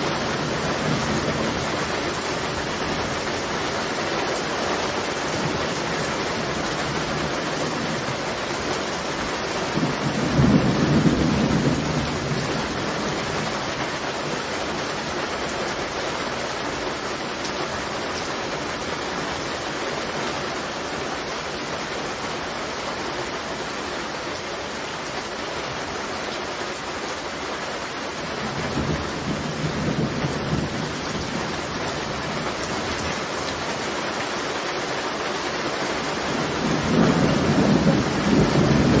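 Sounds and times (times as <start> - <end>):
heavy rain falling: 0.0 - 39.0
thunder rumbling: 4.8 - 14.4, 28.2 - 33.6, 36.1 - 39.0.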